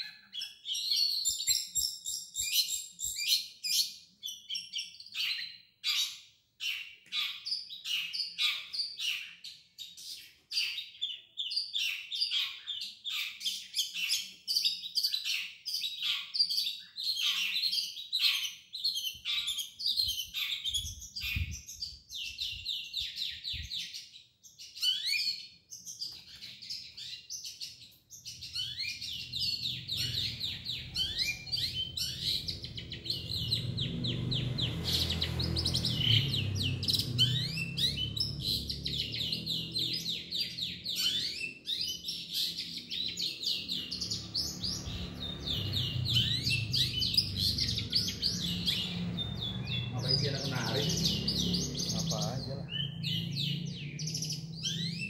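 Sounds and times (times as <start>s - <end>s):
bird chattering chirps: 0.0s - 55.0s.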